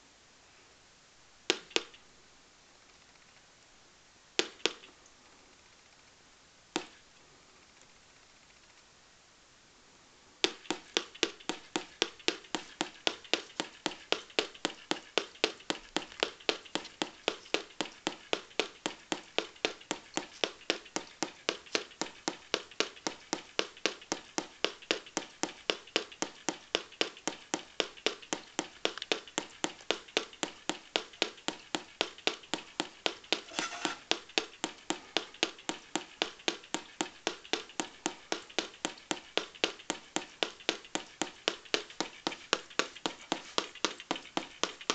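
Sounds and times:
sharp clicks through speakers: 1.5 - 2.0, 10.4 - 44.9.

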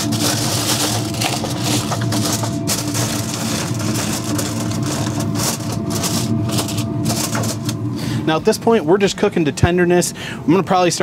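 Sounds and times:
aluminum foil crinkling: 0.0 - 7.8
pellet grill humming: 0.0 - 11.0.

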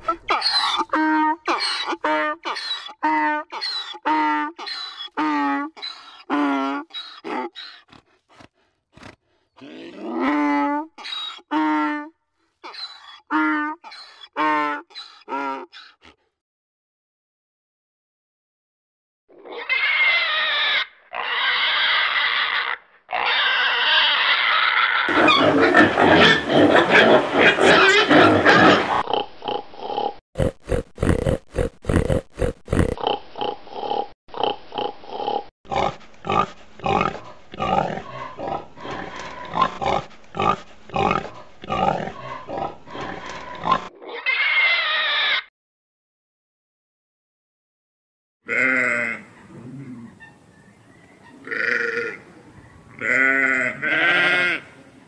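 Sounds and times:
pigs squealing: 0.0 - 8.0, 9.6 - 11.5, 12.6 - 16.2, 19.4 - 45.5, 53.0 - 54.7
pigs grunting rhythmically: 25.1 - 43.9.

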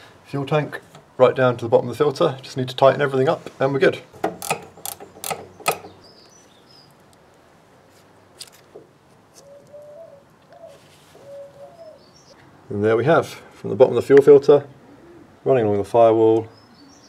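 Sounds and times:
spanners clinking on metal fittings: 4.2 - 6.0
pigeon cooing: 9.4 - 12.1, 14.7 - 15.4.

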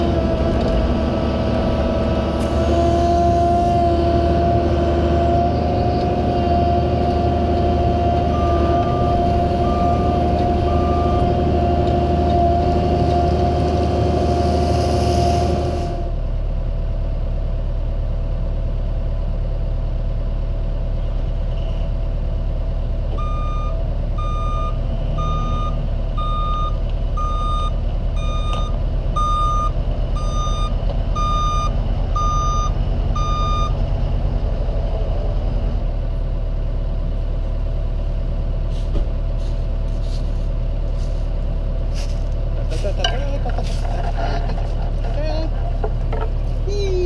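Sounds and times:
engine running: 0.0 - 47.0
truck reversing alarm beeping: 7.8 - 13.4, 23.2 - 33.8.

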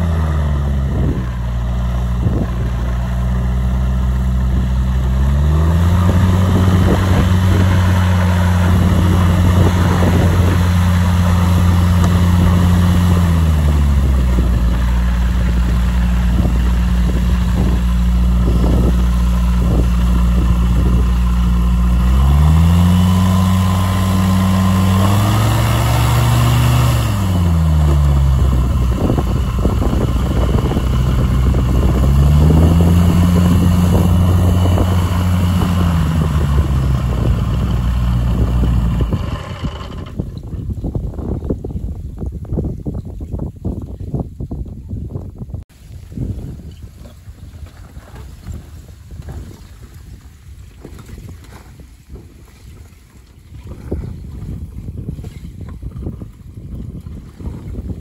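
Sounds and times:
propeller plane engine: 0.0 - 40.6.

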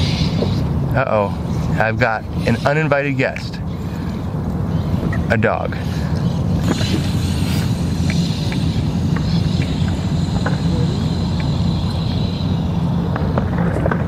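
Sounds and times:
distant electric motor whine: 0.0 - 14.0
low rumble: 6.0 - 14.0.

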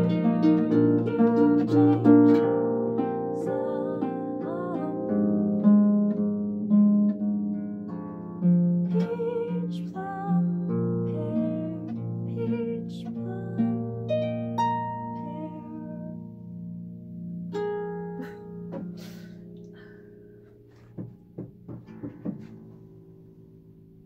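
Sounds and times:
woman singing: 0.0 - 5.4, 8.9 - 14.3, 15.0 - 16.2
harp plucked notes and chords: 0.0 - 23.2.

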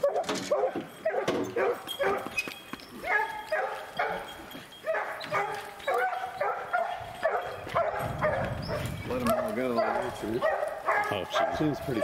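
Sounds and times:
dogs barking: 0.0 - 2.4, 3.0 - 12.0.

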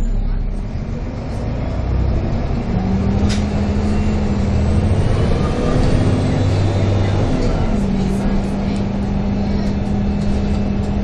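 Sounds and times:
bus diesel engine running: 0.0 - 11.0.

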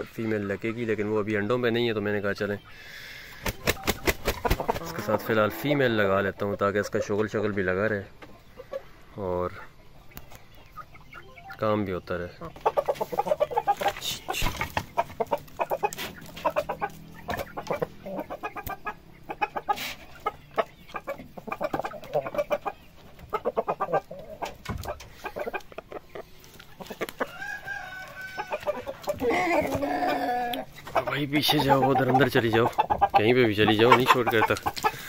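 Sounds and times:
chickens clucking: 0.0 - 35.0
drawn-out chicken call: 1.8 - 7.2, 8.2 - 35.0.

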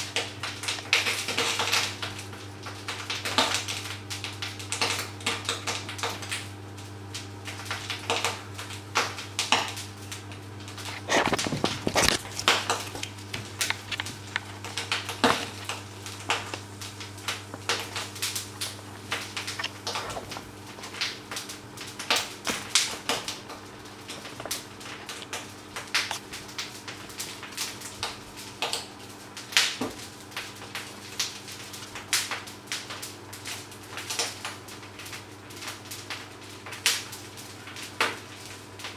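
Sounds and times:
utensil scraping steel pot: 10.8 - 16.7.

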